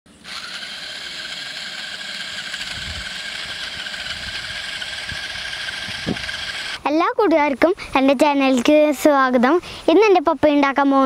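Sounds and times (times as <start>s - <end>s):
small motors and gears whining: 0.1s - 6.8s.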